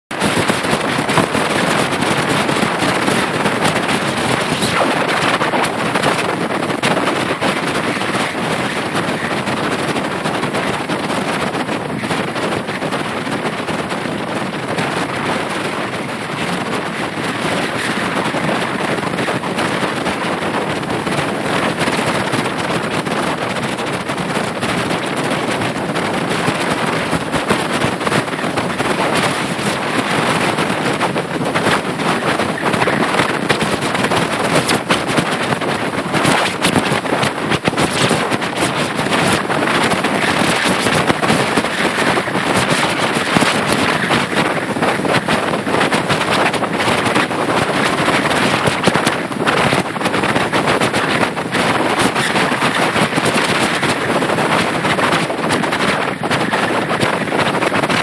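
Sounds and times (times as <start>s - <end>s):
loud rushing noise: 0.1s - 10.2s
faint crackles: 0.3s - 9.3s.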